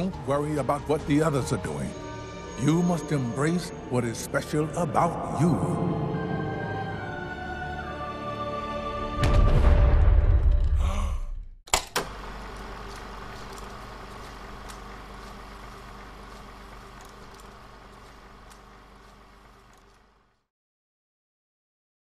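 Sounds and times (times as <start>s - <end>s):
low mechanical whirring: 11.7s - 20.5s.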